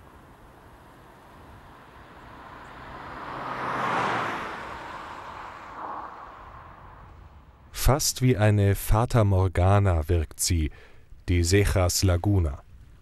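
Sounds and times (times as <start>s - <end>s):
vehicle passing by: 0.8s - 7.6s.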